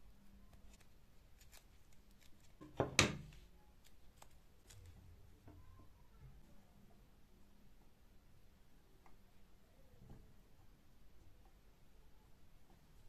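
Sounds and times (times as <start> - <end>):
faint clicks and rubbing: 0.3 - 5.7.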